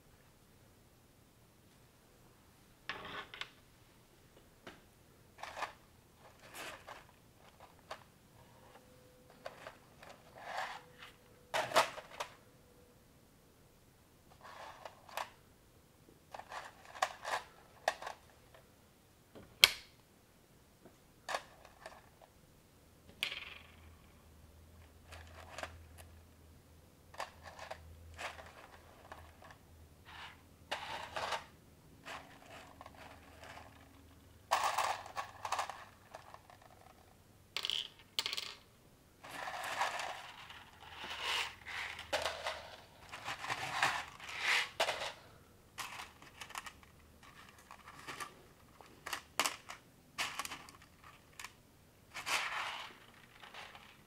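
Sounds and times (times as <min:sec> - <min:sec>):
loose plastic pieces clattering: 0:27.1 - 0:29.6, 0:30.7 - 0:37.0, 0:39.2 - 0:54.0.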